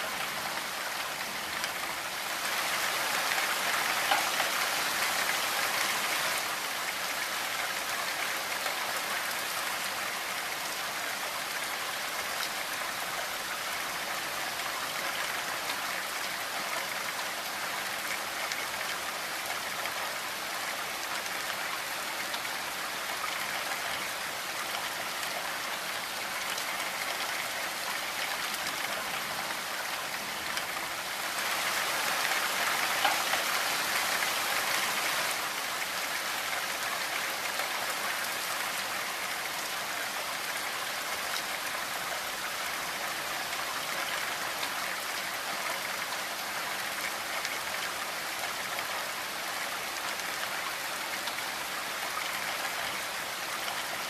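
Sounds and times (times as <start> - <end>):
rain on window and roof: 0.0 - 54.0.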